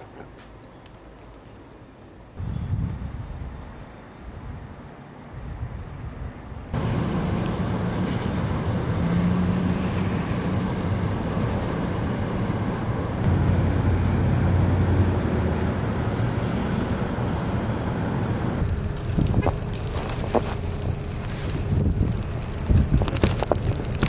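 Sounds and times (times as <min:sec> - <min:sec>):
traffic on snowy road: 0:06.7 - 0:24.0
passing vehicle engine hum: 0:06.8 - 0:24.0.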